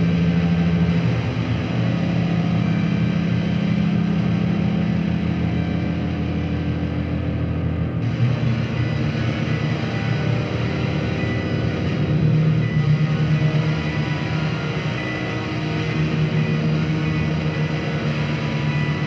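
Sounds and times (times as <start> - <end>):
ambient drone music: 0.0 - 19.0.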